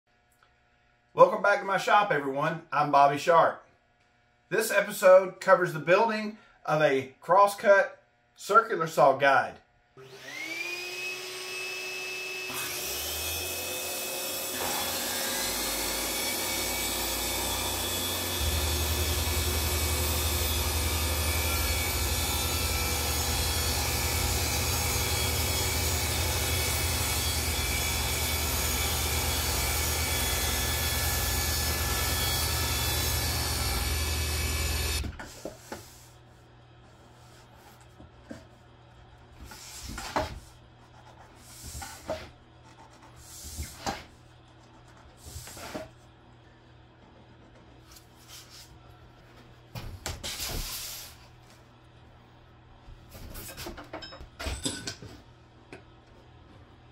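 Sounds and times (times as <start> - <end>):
circular saw cutting: 10.0 - 35.2
dust extractor suction: 10.0 - 35.6
router: 10.0 - 35.6
table saw: 10.0 - 36.1, 44.8 - 45.9.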